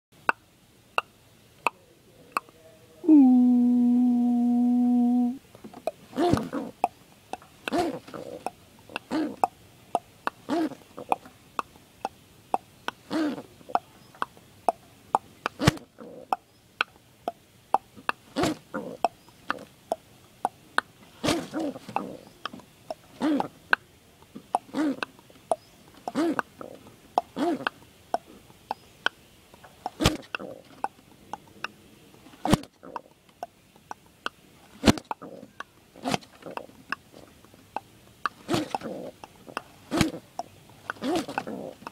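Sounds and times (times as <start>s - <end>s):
pigeon grunting calls: 1.7s - 14.8s, 17.8s - 20.6s, 21.2s - 23.8s, 24.4s - 28.9s, 29.7s - 33.1s, 34.8s - 41.9s
pigeon wing slaps: 30.0s - 30.3s.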